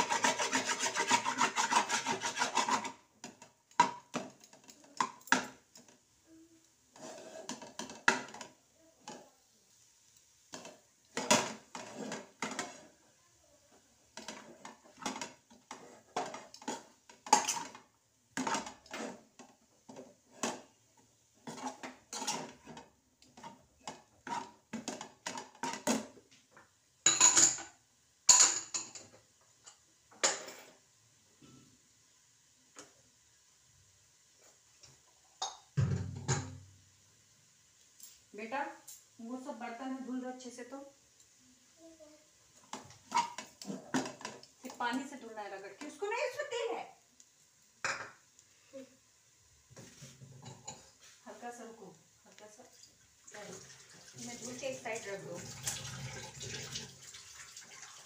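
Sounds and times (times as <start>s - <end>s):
metal spoon scraping a frying pan: 0.0s - 3.1s, 6.9s - 8.4s, 10.5s - 13.0s, 14.2s - 17.8s, 18.4s - 20.7s, 21.4s - 26.1s, 42.7s - 44.9s.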